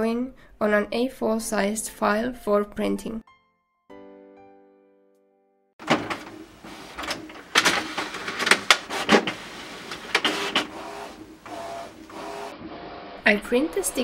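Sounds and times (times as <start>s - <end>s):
printer mechanical clicks: 5.8s - 12.6s
printer motor whirs: 5.8s - 13.1s.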